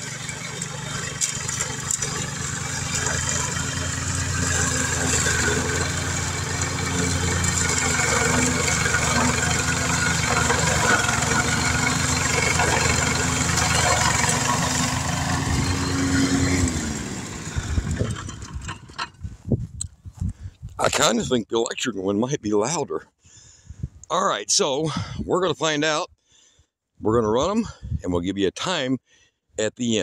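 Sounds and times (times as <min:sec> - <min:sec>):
lawn mower engine running: 0:00.0 - 0:19.4.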